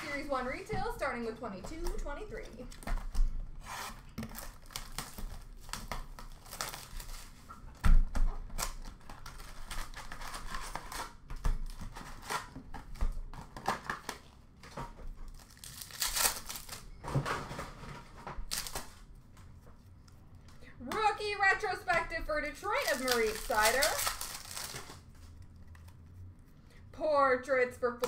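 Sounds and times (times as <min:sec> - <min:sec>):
wrappers crinkling and tearing: 0:04.2 - 0:07.4, 0:08.4 - 0:14.2, 0:15.2 - 0:17.0, 0:18.4 - 0:19.1, 0:22.4 - 0:26.2.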